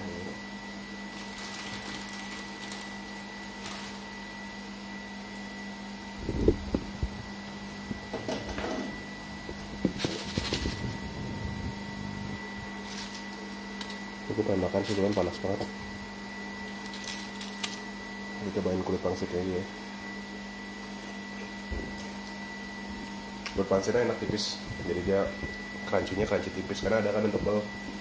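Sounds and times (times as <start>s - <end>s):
thin high whine: 3.6s - 28.0s
low hum: 8.9s - 13.2s.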